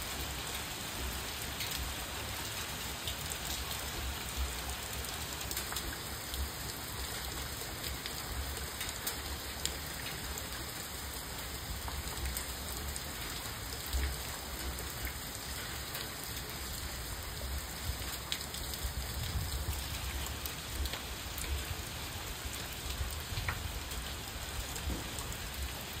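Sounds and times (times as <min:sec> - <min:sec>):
rain on pavement and foliage: 0:00.0 - 0:26.0
raindrops ticking: 0:04.3 - 0:10.6, 0:17.7 - 0:26.0.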